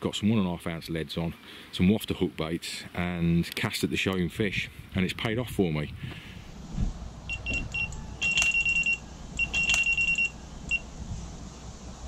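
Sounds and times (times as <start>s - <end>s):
wind rumble on microphone: 4.3s - 8.3s, 10.6s - 12.0s
electronic bite alarm beeps: 7.3s - 10.9s.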